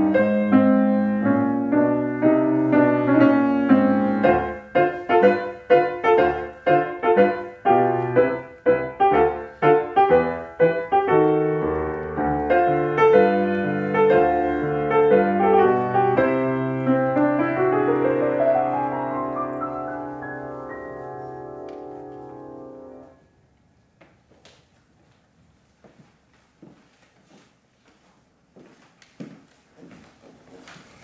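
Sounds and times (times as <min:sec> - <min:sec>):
grand piano chords: 0:00.0 - 0:23.5.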